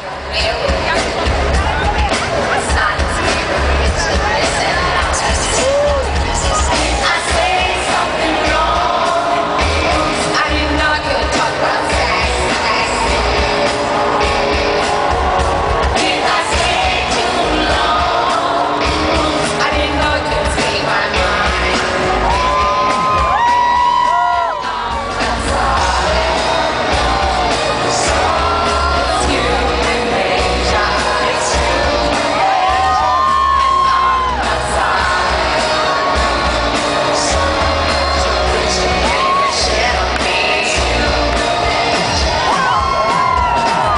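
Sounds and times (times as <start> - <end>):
live pop-rock band: 0.0 - 43.9
woman singing: 2.5 - 15.0, 16.0 - 43.9
people shouting and whooping: 4.4 - 7.2, 22.0 - 29.7, 31.7 - 36.4, 37.7 - 40.2, 41.3 - 43.9
heavy bass beat: 18.8 - 43.9.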